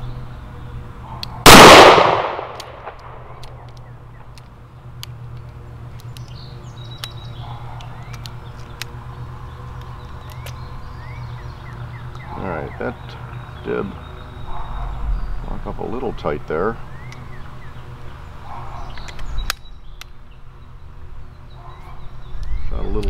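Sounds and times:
revolver gunshot: 1.5s - 3.4s
bird chirps: 6.0s - 23.0s.

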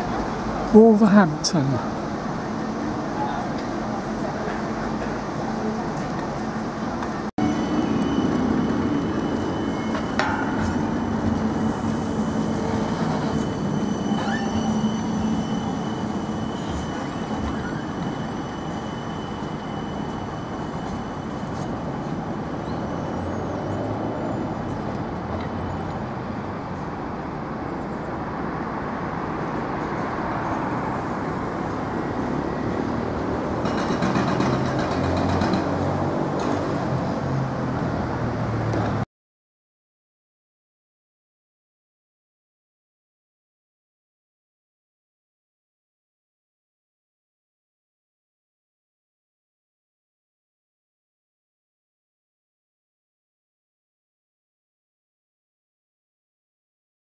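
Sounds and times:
tram whine: 0.0s - 39.0s
road traffic: 0.0s - 39.1s.

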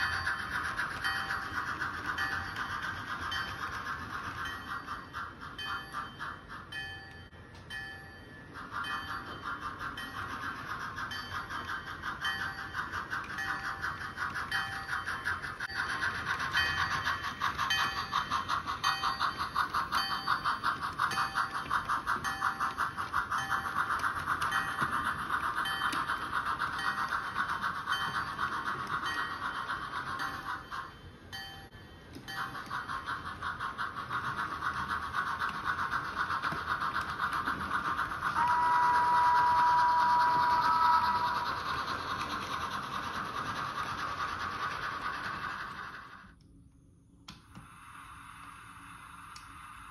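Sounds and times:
model steam locomotive chuffs: 0.0s - 49.9s
two-tone steam whistle: 38.2s - 42.4s.

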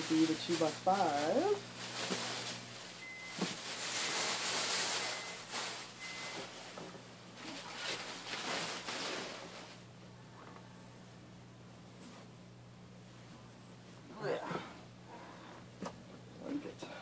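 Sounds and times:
plastic bags and fabric rustling: 0.0s - 9.9s.

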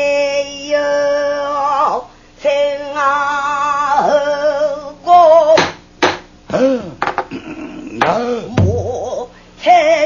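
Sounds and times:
woman singing with vibrato: 0.0s - 5.8s, 8.0s - 10.0s.

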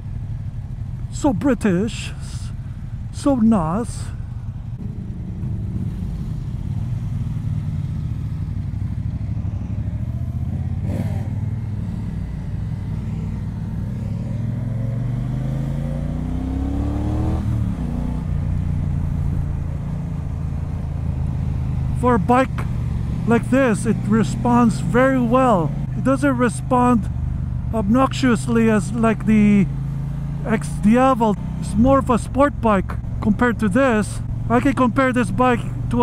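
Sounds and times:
motorcycle engine pulling away: 4.7s - 22.0s, 29.7s - 30.5s.

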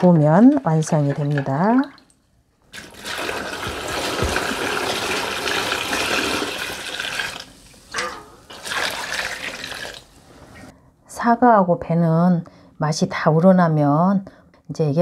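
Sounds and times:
liquid pouring and splashing: 0.0s - 10.2s.

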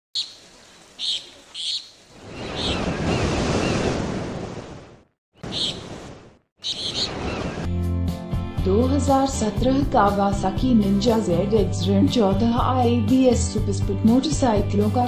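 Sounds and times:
ocean waves washing in: 0.4s - 7.7s.

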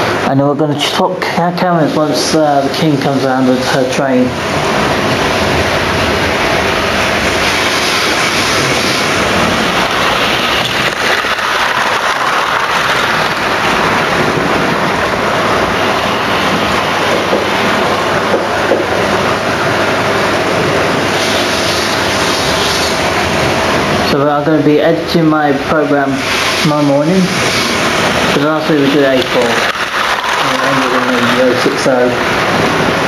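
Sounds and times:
model train motor whirring: 6.9s - 14.7s, 21.2s - 23.3s, 26.0s - 32.2s.

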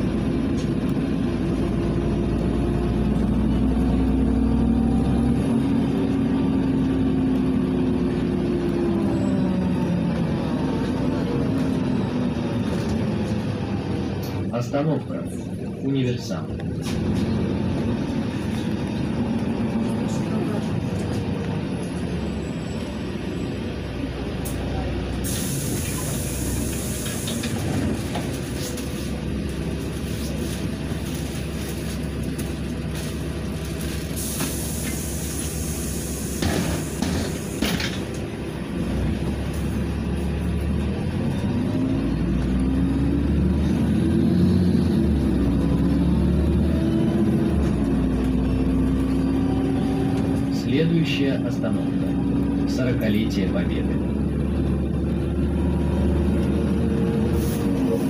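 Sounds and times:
bus engine accelerating: 0.0s - 58.0s
pneumatic air hiss: 25.1s - 27.7s, 34.2s - 37.8s.

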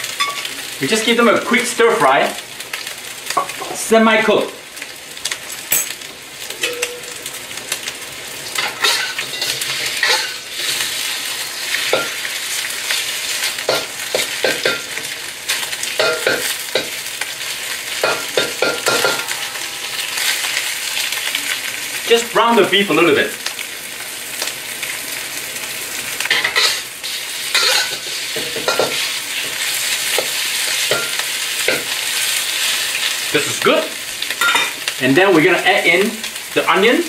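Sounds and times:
beef sizzling in hot oil: 0.0s - 37.0s
metal spatula scraping wok: 8.6s - 12.3s, 12.9s - 21.7s, 26.3s - 31.9s.

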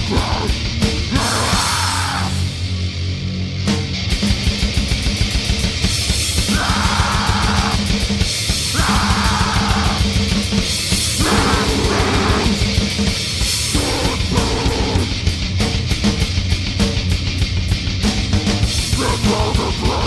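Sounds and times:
fast drumming: 0.0s - 2.6s, 3.7s - 20.0s
distorted guitars: 0.0s - 20.0s
harsh noisy bursts: 6.0s - 15.4s.

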